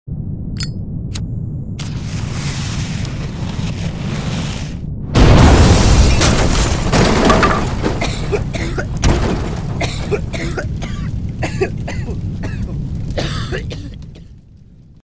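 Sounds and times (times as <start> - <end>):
explosion rumble: 0.1 - 15.0
crackles: 1.0 - 15.0
debris clattering: 5.2 - 14.5.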